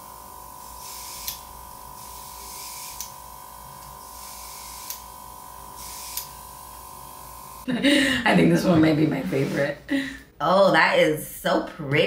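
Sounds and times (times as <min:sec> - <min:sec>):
airbrush hissing bursts: 0:00.0 - 0:07.7
airbrush click: 0:06.0 - 0:06.3.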